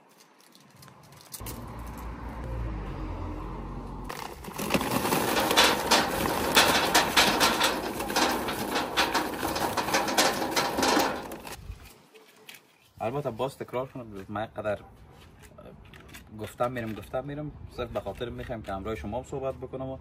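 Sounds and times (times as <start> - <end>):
charcoal clattering onto metal grate: 4.1 - 11.6.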